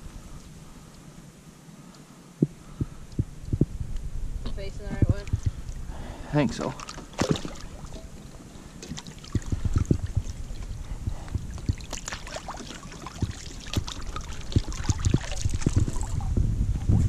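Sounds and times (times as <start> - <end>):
wind rumble on microphone: 2.4 - 6.8, 9.2 - 17.0
water splashing and sloshing: 4.6 - 16.4.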